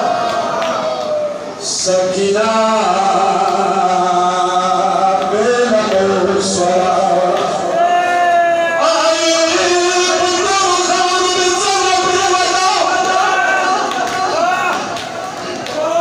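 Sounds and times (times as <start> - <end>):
man chanting slow melody: 1.6 - 7.8, 8.8 - 14.4.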